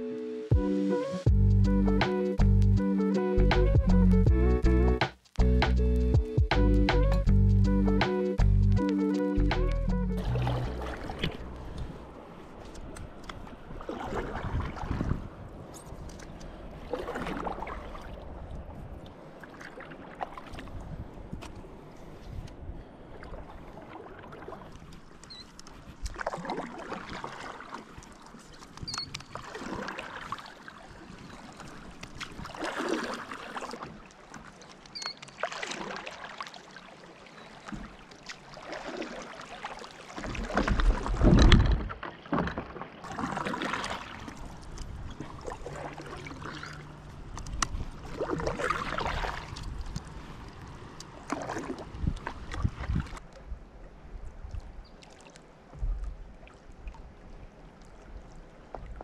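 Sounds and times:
paddle strokes splashing in water: 10.2 - 53.5, 54.4 - 59.0.

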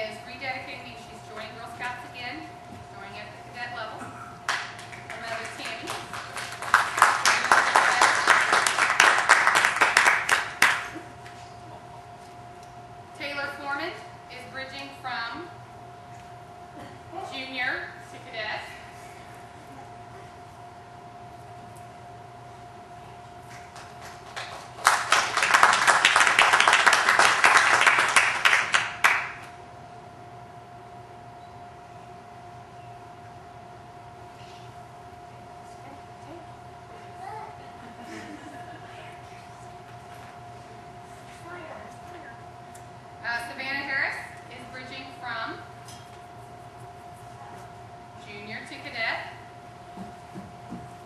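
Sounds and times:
audience applauding: 4.5 - 11.1, 23.5 - 29.5.

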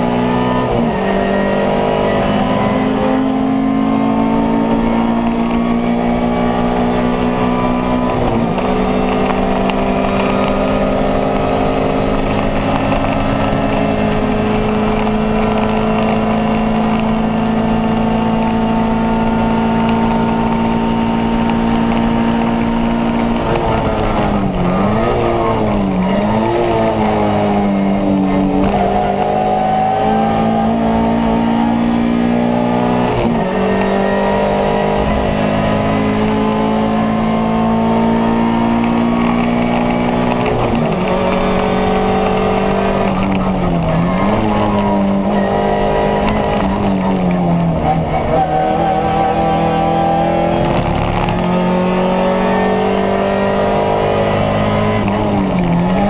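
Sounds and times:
car engine revving high: 0.0 - 56.0.

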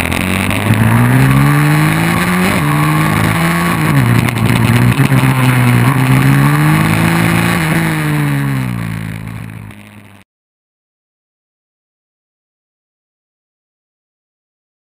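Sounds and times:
dirt bike engine revving: 0.0 - 10.2.

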